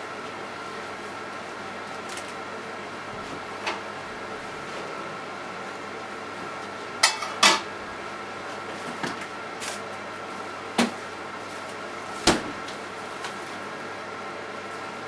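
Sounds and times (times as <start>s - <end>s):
microwave oven humming: 0.0s - 15.0s.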